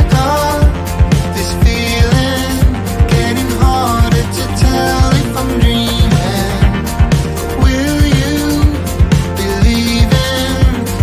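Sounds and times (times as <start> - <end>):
upbeat pop music: 0.0 - 11.0.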